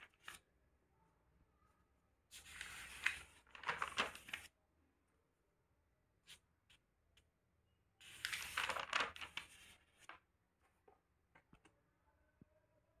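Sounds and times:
paper page rustling: 0.0 - 0.4, 2.3 - 4.5, 8.0 - 10.2
faint paper handling clicks: 2.4 - 4.5, 8.0 - 11.8.

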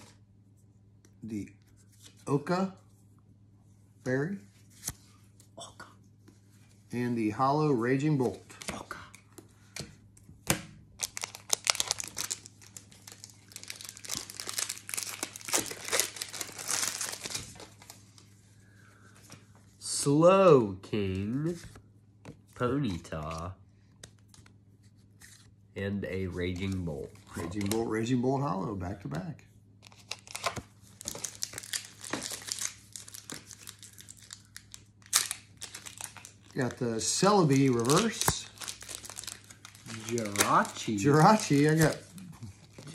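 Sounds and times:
foil wrapper crinkling and tearing: 11.0 - 18.0, 29.9 - 42.9
cards rustling: 11.0 - 18.3, 26.2 - 28.1, 29.8 - 42.9.

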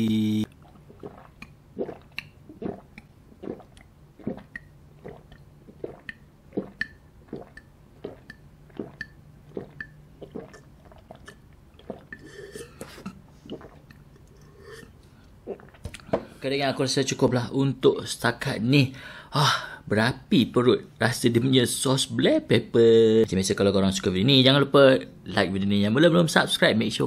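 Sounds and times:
person gulping a drink: 0.4 - 16.4.

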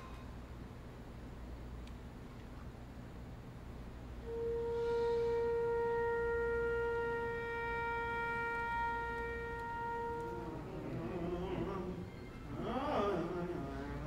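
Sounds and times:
flute holding long note: 4.2 - 14.0
singers with wavering voices: 8.9 - 14.0.

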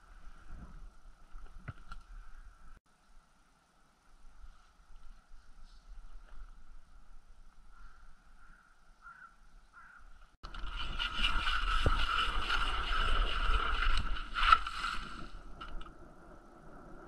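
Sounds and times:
ice auger grinding through ice: 10.4 - 15.3.

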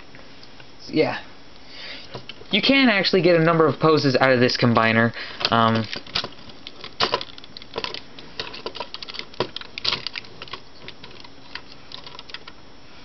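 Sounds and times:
plastic toy parts clicking: 5.4 - 12.6.

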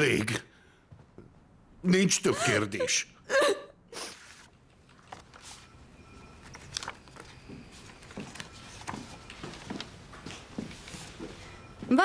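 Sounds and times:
photographs rustling and clicking: 4.2 - 5.7, 6.4 - 11.3.

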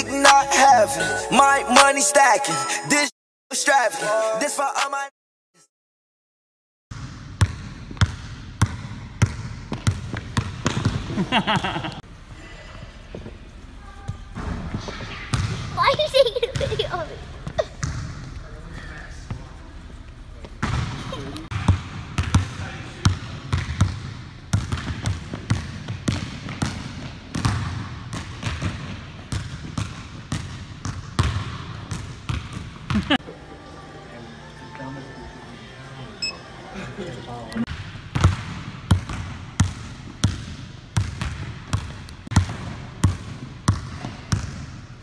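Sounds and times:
basketball bouncing on hardwood: 6.9 - 11.1
basketball bouncing on wooden floor: 6.9 - 11.8, 17.5 - 18.3, 21.6 - 33.2, 38.1 - 44.7.

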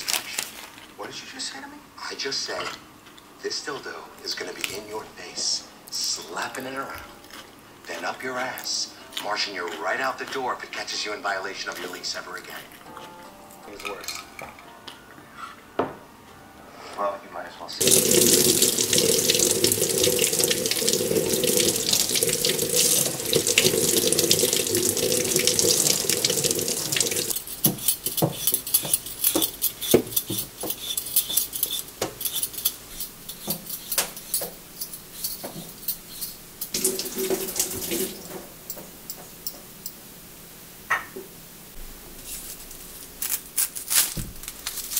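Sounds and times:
hands washing under water: 17.8 - 27.4, 36.7 - 38.6
potato peeler scraping: 27.3 - 36.8.

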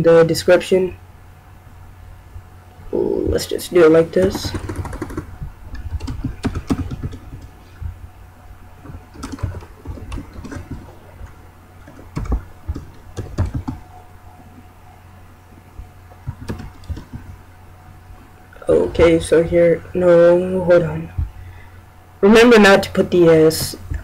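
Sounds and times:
typing on computer keyboard: 4.2 - 7.5, 8.8 - 11.0, 11.8 - 13.8, 16.2 - 17.3.

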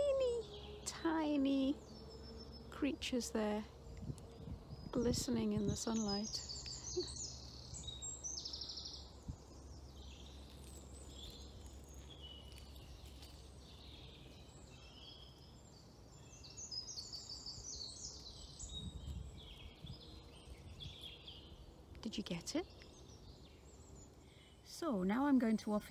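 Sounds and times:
faint low rumble: 0.0 - 16.2
songbirds singing: 0.0 - 25.9.

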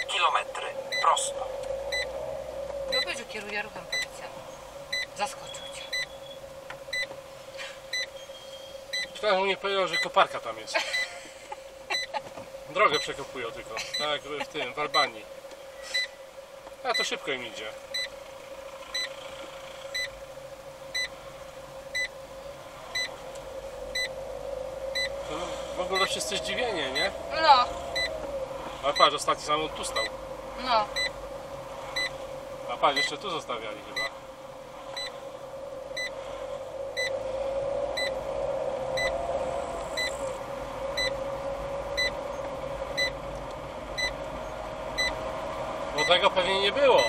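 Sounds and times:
car interior hum: 0.0 - 47.0
short electronic beep: 4.9 - 7.1, 15.8 - 16.2.

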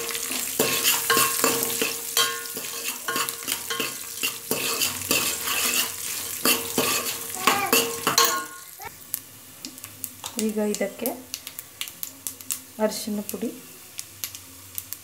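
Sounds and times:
spoon stirring and scraping pot: 0.0 - 8.6
hot oil sizzling: 0.0 - 15.0.

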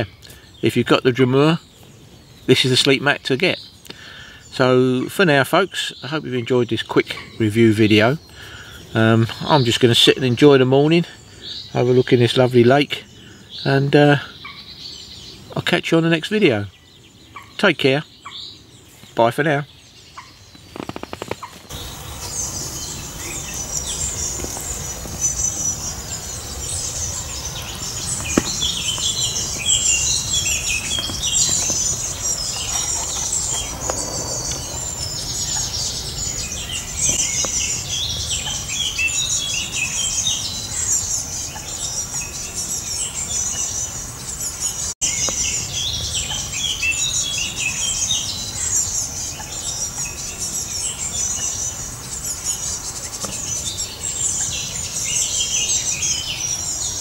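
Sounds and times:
birds singing and chirping: 0.0 - 57.0
steady high chirring: 21.7 - 37.3.

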